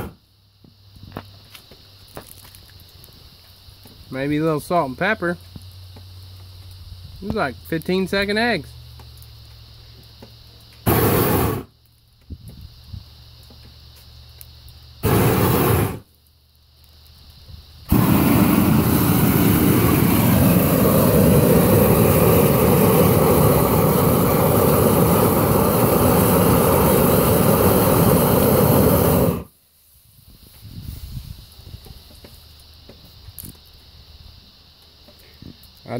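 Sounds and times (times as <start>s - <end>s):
blowtorch burning: 0.0s - 4.4s, 5.5s - 33.8s.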